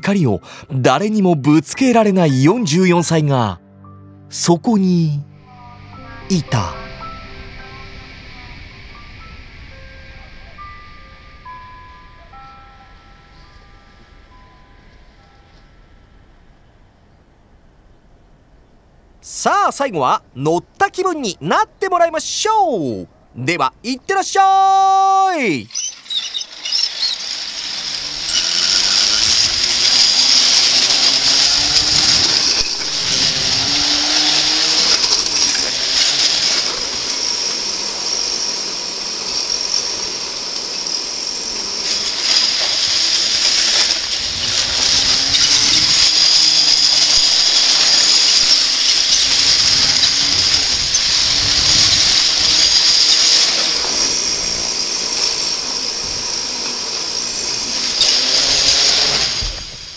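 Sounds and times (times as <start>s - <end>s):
roller slide rollers rattling: 25.7s - 59.9s.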